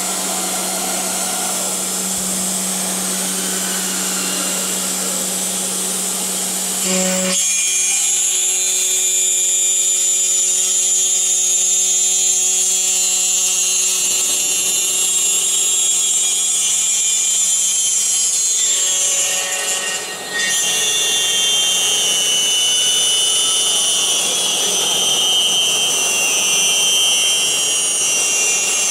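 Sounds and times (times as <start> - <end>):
machine spindle whining: 0.0 - 8.5, 18.5 - 28.9.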